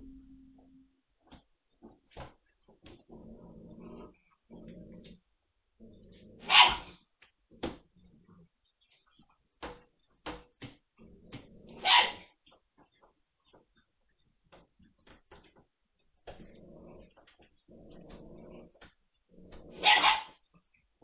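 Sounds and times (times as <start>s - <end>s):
puppies play-growling: 2.7s - 7.0s, 16.2s - 20.3s
puppy barks: 6.4s - 7.0s, 11.7s - 12.3s, 19.7s - 20.4s.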